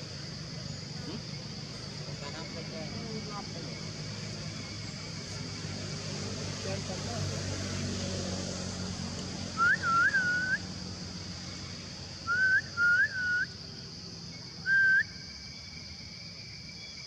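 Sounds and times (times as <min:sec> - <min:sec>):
rising whistled notes: 0:09.6 - 0:10.6, 0:12.3 - 0:13.5.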